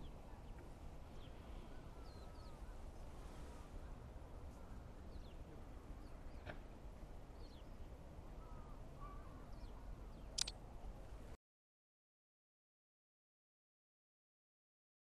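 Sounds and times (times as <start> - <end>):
sharp click: 10.4 - 10.6.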